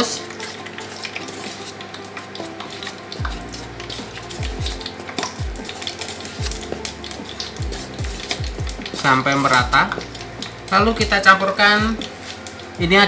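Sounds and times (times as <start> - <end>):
spoon scraping flour in bowl: 0.0 - 10.2.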